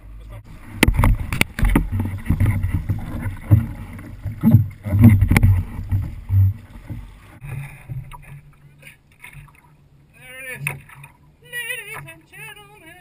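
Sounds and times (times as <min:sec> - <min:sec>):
low rumbling thumps: 0:00.4 - 0:08.5
water sloshing against kayak: 0:00.4 - 0:12.8.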